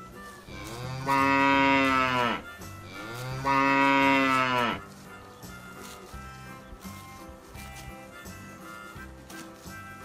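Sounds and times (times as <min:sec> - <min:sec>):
cow mooing: 0:00.6 - 0:04.8.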